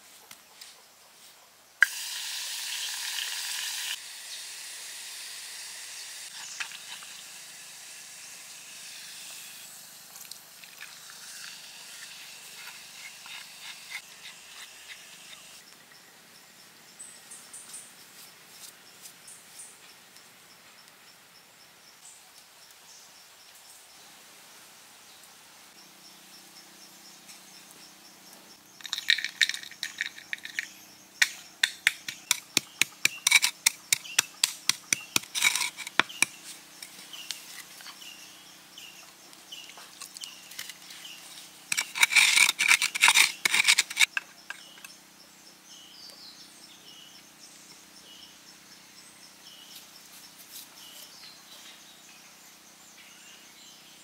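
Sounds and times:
hard objects clicking and tapping: 28.8s - 36.4s.

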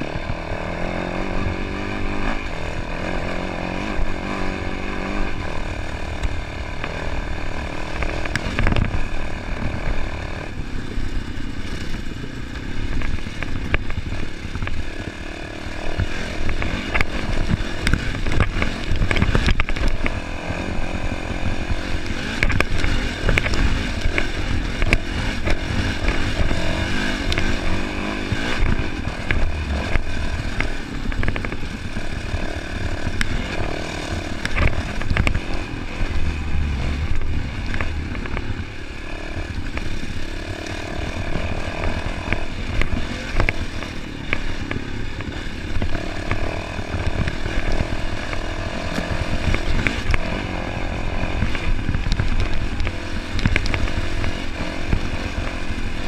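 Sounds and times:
dirt bike engine revving: 0.0s - 56.0s
heavy low rumble: 24.9s - 42.8s.

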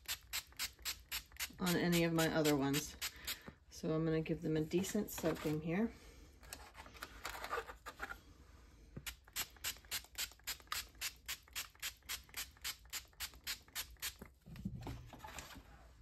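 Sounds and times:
trigger spray bottle squirting: 0.0s - 3.4s, 9.0s - 14.3s.

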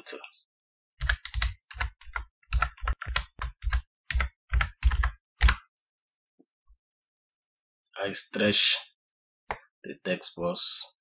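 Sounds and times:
typing on computer keyboard: 1.0s - 5.7s.

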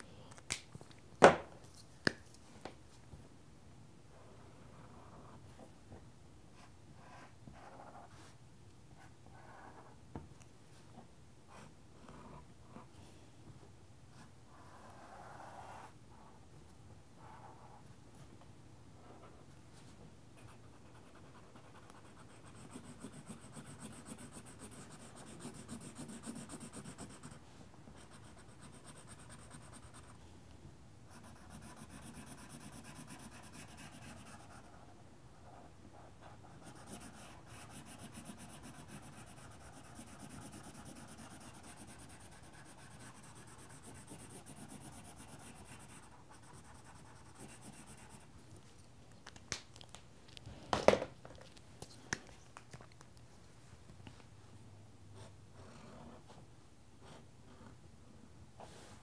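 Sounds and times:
marker scratching on paper: 36.5s - 48.3s.

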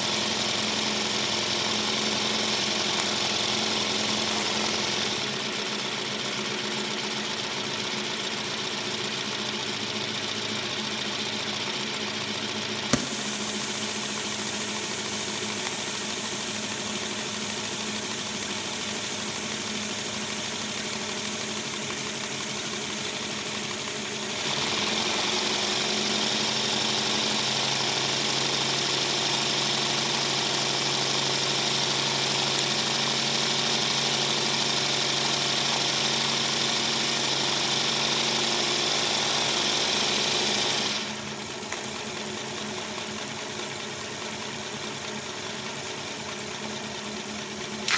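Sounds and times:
steam hissing: 12.9s - 17.0s.

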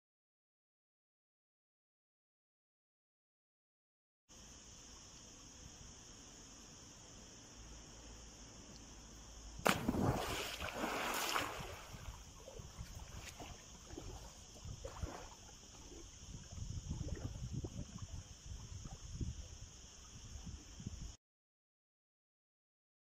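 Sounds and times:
loud splash into pool: 9.6s - 12.2s
water splashing from swimming: 9.6s - 16.0s.

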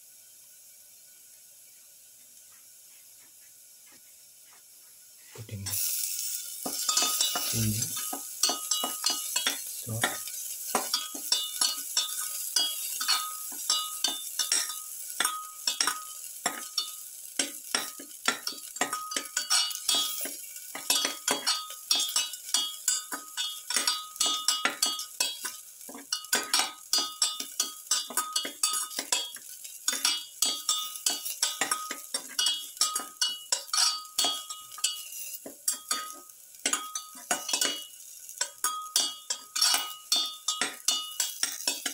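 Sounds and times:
food sizzling in oil: 0.0s - 41.9s
spatula scraping metal pan: 17.7s - 41.9s.

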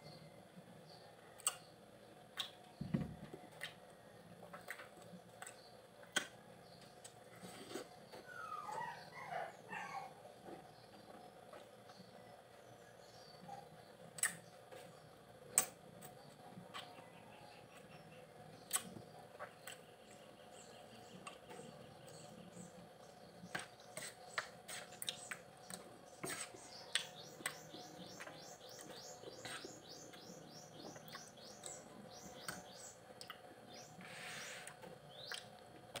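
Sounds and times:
bird chirping: 16.2s - 35.5s.

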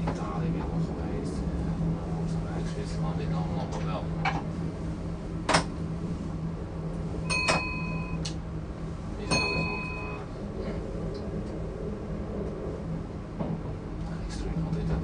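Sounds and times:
diesel train engine hum: 0.0s - 15.0s
bell dinging: 7.3s - 8.2s, 9.3s - 10.2s.

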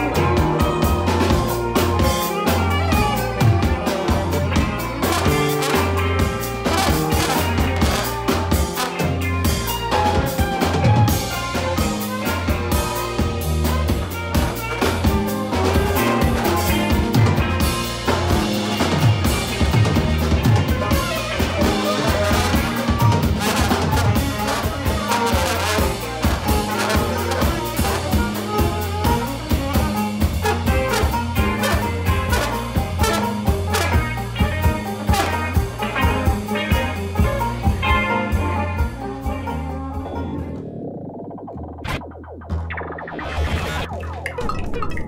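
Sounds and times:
saxophone and trombone horn lines: 0.0s - 40.8s
live band playing: 0.0s - 41.1s
held bass notes: 0.0s - 45.0s.

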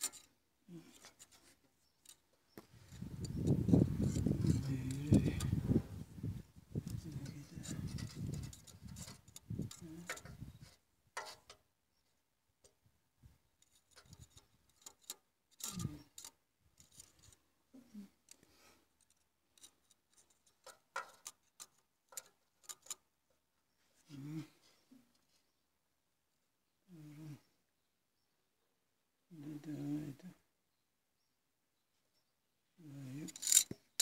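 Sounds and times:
metallic clicks of steel caliper: 33.3s - 33.8s.

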